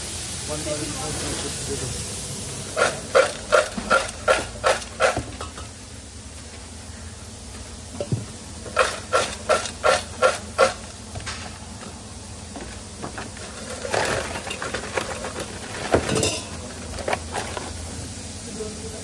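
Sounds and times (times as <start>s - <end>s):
fries shaken in a metal bowl: 2.8s - 5.3s, 8.7s - 11.7s, 12.8s - 17.9s.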